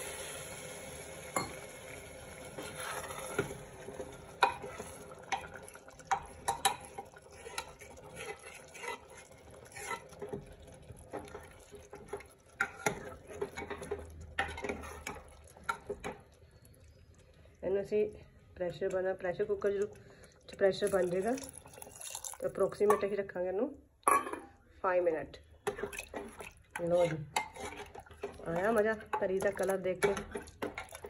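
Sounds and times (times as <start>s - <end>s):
soft sizzle: 0.0s - 23.6s, 24.6s - 31.0s
ladle scraping metal pan: 2.6s - 3.7s, 6.2s - 10.4s, 12.6s - 15.8s, 25.6s - 31.0s.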